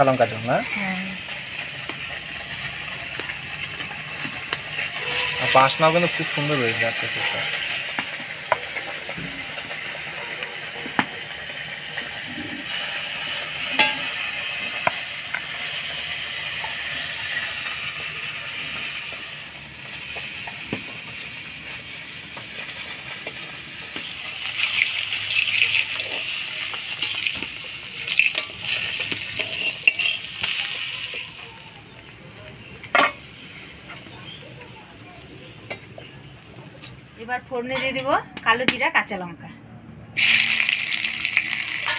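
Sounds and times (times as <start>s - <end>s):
fish sizzling in hot oil: 0.0s - 37.4s, 40.2s - 41.9s
metal spatula clinking on pan: 13.7s - 14.2s, 28.0s - 31.2s.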